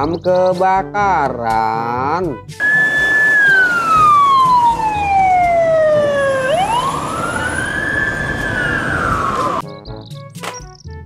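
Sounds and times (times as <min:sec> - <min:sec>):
fire engine siren wailing: 0:02.6 - 0:09.6.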